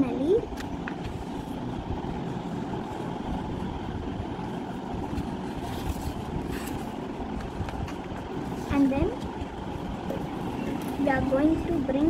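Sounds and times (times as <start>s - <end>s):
low rumbling background noise: 0.0s - 12.0s
paper rustling and crackling: 5.0s - 8.7s.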